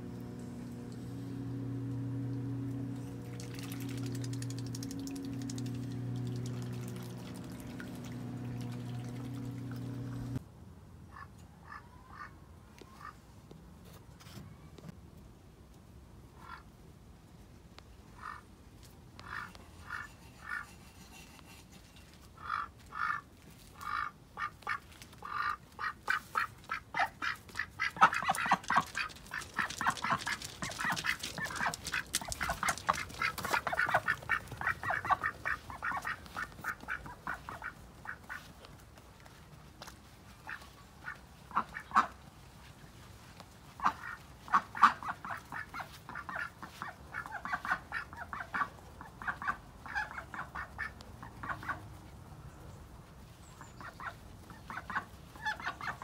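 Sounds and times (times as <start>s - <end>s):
ducks quacking: 19.2s - 20.7s, 22.4s - 38.6s, 40.3s - 42.2s, 43.7s - 51.9s, 53.6s - 56.0s.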